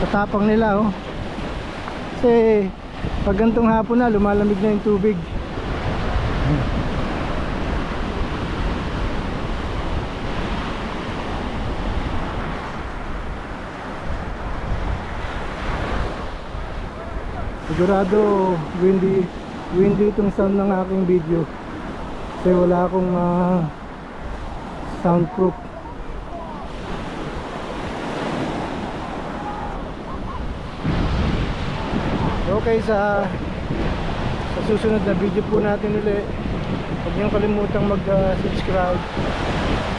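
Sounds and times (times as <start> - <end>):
ocean surf on beach: 0.0 - 39.9
wind buffeting microphone: 0.0 - 39.9.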